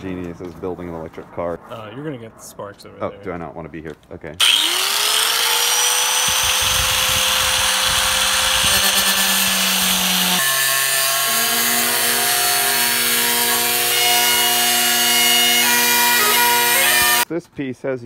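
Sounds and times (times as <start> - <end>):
angle grinder cutting metal sheet: 4.4 - 17.2.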